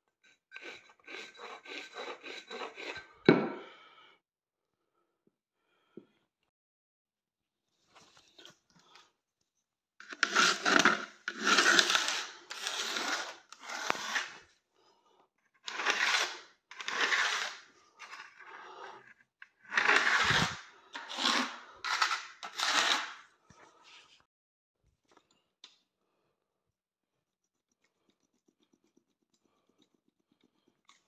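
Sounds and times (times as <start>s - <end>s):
rubbing and scraping strokes: 0.0s - 3.3s, 10.0s - 14.6s, 15.6s - 24.3s.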